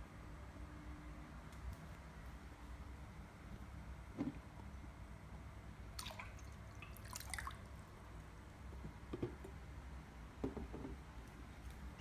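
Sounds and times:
water splashing: 0:06.0 - 0:07.8.

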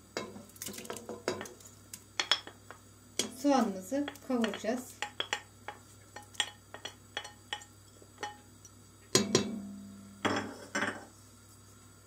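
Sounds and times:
knock on ringing metal pot: 0:09.2 - 0:09.6.

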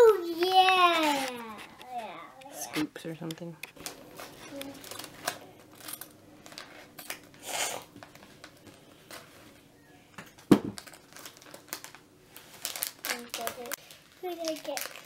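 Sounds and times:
foil bag crinkling: 0:03.8 - 0:09.7, 0:10.4 - 0:15.0.

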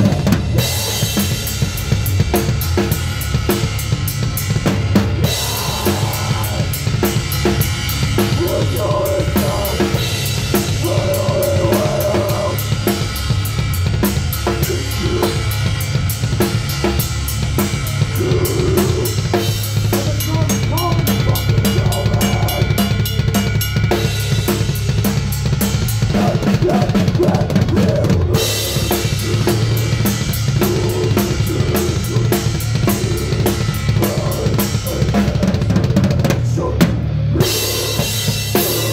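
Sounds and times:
band playing live: 0:00.0 - 0:38.9
drum kit played fast: 0:00.0 - 0:38.9.

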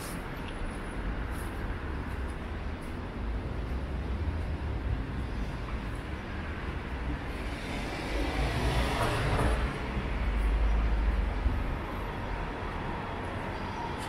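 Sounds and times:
low traffic rumble: 0:00.0 - 0:14.0
car passing by: 0:07.1 - 0:14.0.

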